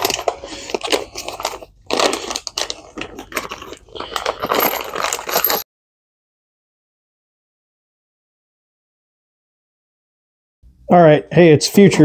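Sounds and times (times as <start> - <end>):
hands rummaging through bolts: 0.0 - 5.6.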